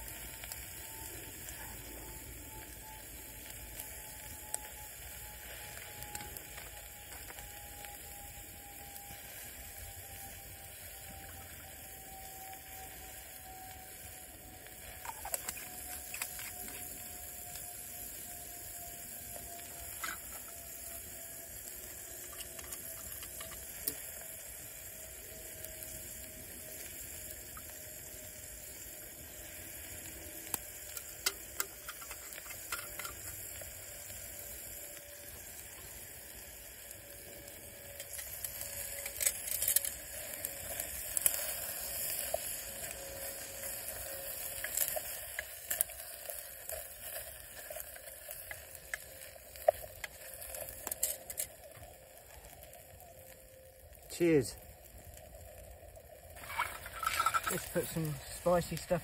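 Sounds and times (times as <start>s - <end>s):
faint thin whistle: 0.0s - 33.4s, 41.3s - 45.1s
wood fire crackling: 0.0s - 59.0s.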